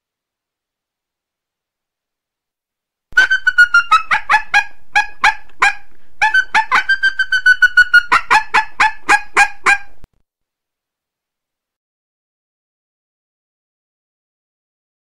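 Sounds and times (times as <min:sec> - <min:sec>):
coyote yipping chirps: 0:03.2 - 0:10.0.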